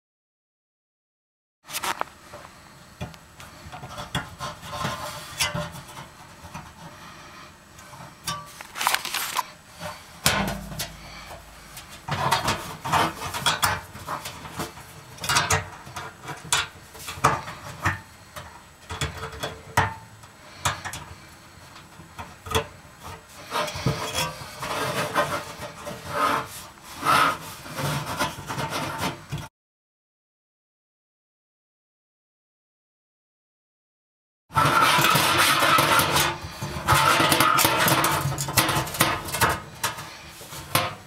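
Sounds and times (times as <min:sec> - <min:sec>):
wires scraping on metal: 0:03.5 - 0:17.9, 0:23.0 - 0:29.2, 0:34.6 - 0:41.0.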